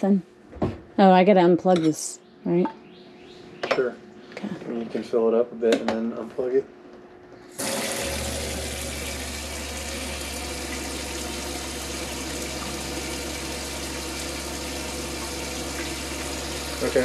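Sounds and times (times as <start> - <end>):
faucet running into steel sink: 7.6 - 17.0.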